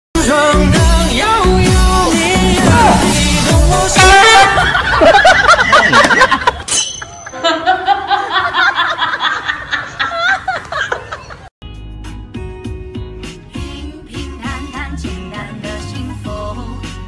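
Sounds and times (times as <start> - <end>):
people laughing and snickering: 4.2 - 11.5.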